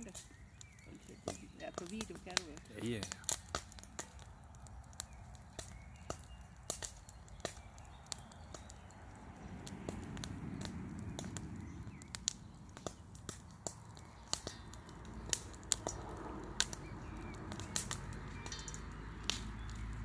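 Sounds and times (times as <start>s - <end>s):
fire crackling: 0.0s - 20.0s
popcorn popping: 9.9s - 20.0s.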